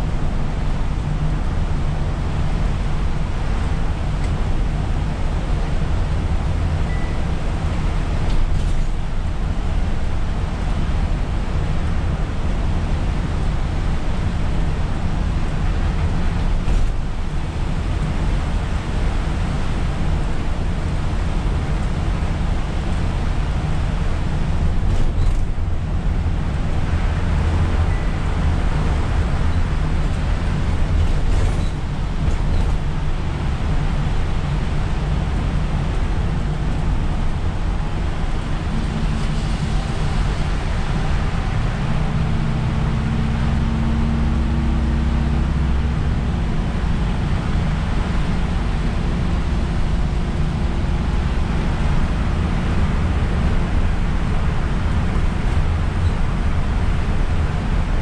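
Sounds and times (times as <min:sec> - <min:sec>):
bus engine rumbling: 0:00.0 - 0:58.0
tyres hissing on wet road: 0:38.5 - 0:44.2.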